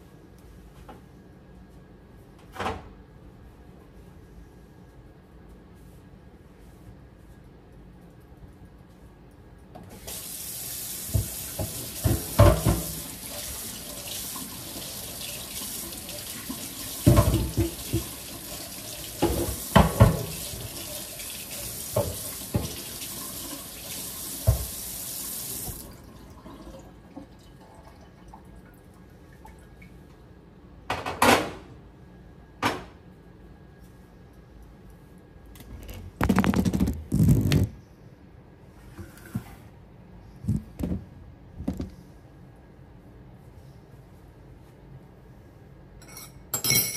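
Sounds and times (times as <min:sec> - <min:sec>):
tap running into sink: 0:11.0 - 0:13.2, 0:16.9 - 0:18.4, 0:19.1 - 0:20.8, 0:21.8 - 0:23.0, 0:24.4 - 0:24.8.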